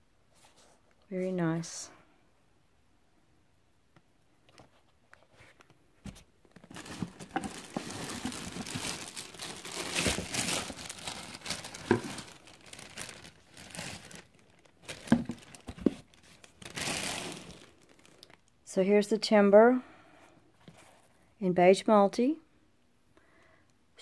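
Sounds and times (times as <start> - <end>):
plastic bag crinkling: 6.5 - 18.4.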